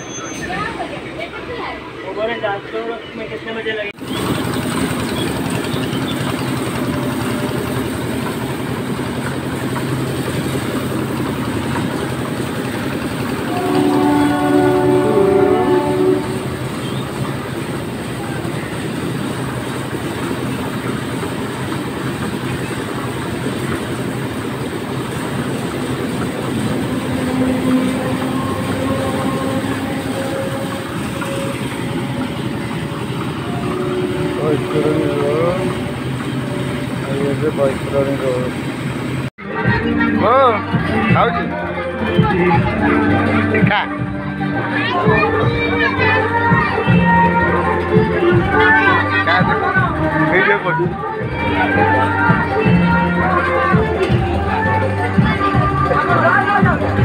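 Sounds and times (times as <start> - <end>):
train rumbling on rails: 0.0 - 57.0
train horn chord: 13.3 - 17.3, 26.4 - 38.3.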